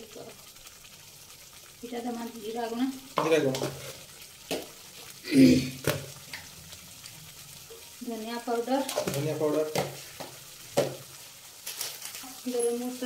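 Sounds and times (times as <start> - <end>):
spices sizzling in oil: 0.0 - 13.0
spatula knocking against pan: 9.7 - 11.0.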